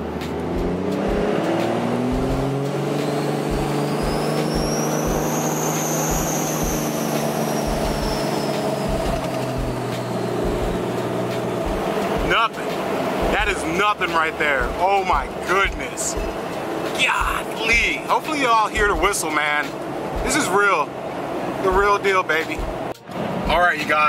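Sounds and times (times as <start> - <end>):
diesel engine accelerating: 0.0 - 24.0
turbo whistle: 3.2 - 9.2.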